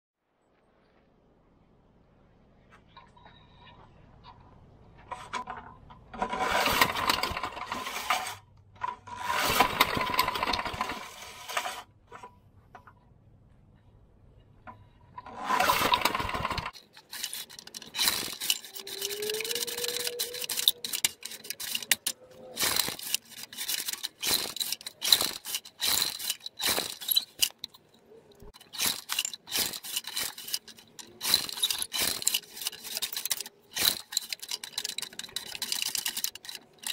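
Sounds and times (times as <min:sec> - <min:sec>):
pull starter cord whir and rattle: 0:05.3 - 0:12.3, 0:15.2 - 0:27.8, 0:28.4 - 0:36.9.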